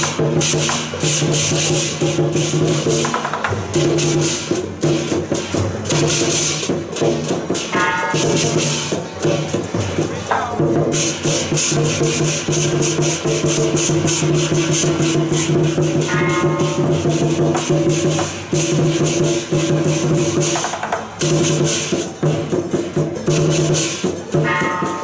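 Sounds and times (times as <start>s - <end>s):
percussion band playing: 0.0s - 25.0s
rapid cymbal strikes: 0.0s - 25.0s
low steady ring: 15.5s - 17.8s.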